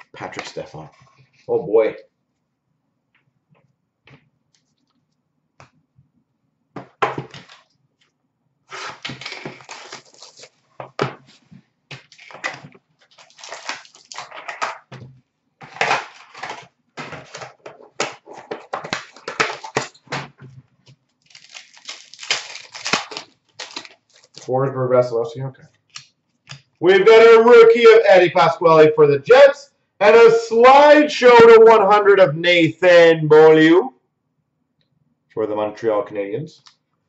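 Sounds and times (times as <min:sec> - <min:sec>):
wrappers crinkling and tearing: 0:08.7 - 0:14.7, 0:15.6 - 0:20.2, 0:21.0 - 0:24.6.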